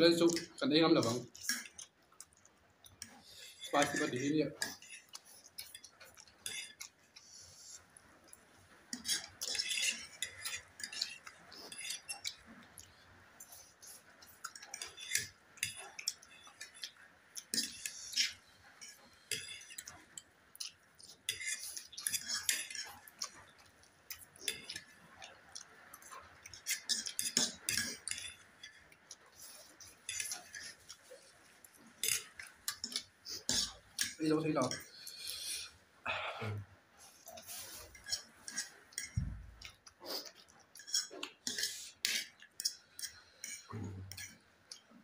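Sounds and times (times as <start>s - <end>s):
slurping and chewing: 0.2s - 35.8s, 37.0s - 45.0s
forks clinking and scraping plates: 3.0s - 6.9s, 8.9s - 12.9s, 14.3s - 25.0s, 25.9s - 35.0s, 37.2s - 44.4s.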